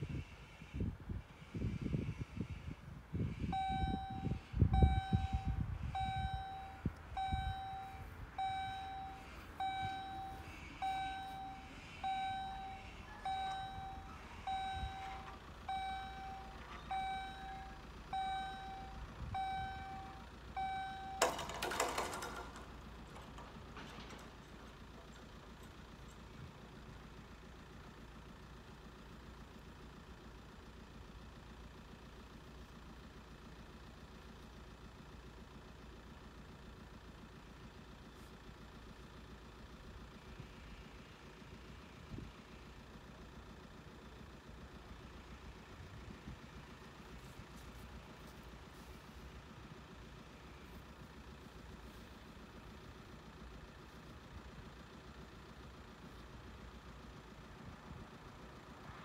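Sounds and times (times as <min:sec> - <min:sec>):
low steady background noise: 0:02.1 - 0:59.0
level-crossing warning bells ringing: 0:03.3 - 0:23.4.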